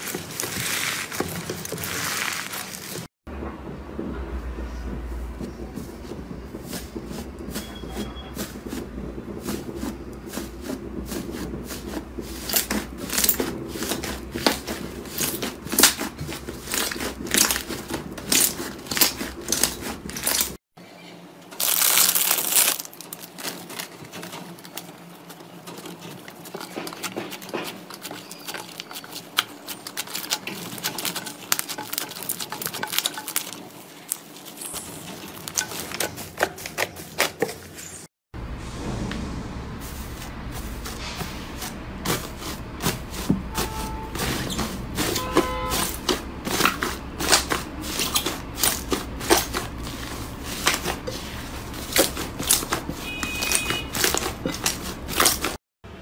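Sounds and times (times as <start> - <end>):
plastic packet crinkling: 0.0 - 3.1, 21.5 - 27.0.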